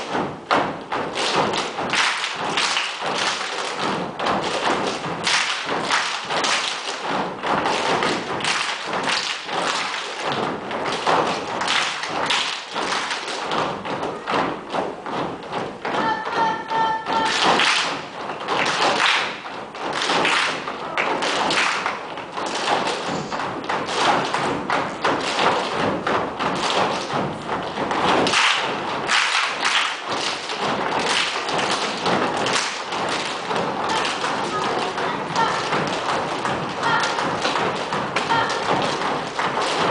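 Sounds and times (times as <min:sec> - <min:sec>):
boots stomping and slapping: 0:00.0 - 0:16.1, 0:17.2 - 0:29.3.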